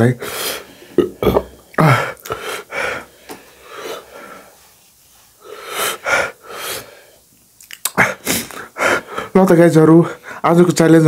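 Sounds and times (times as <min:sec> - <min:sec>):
person gasping and sniffing: 0:00.2 - 0:04.6, 0:07.8 - 0:09.4.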